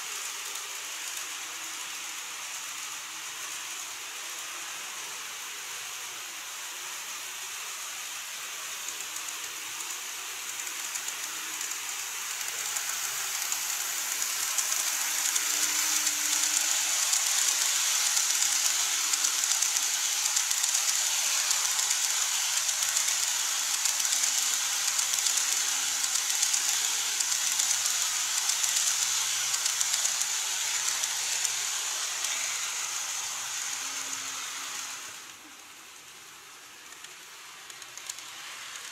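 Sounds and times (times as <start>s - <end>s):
model train wheels on rails: 0.0s - 38.9s.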